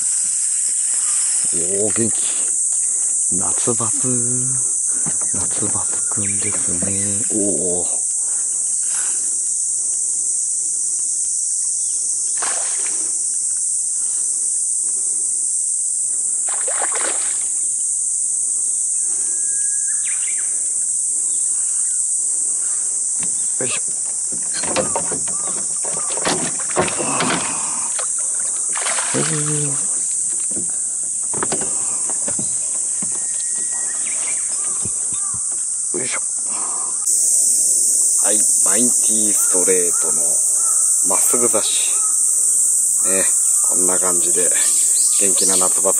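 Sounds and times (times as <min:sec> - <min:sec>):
high-pitched insect chorus: 0:00.0 - 0:45.9
fish splashing at surface: 0:12.4 - 0:13.0, 0:16.5 - 0:17.5, 0:25.9 - 0:29.8.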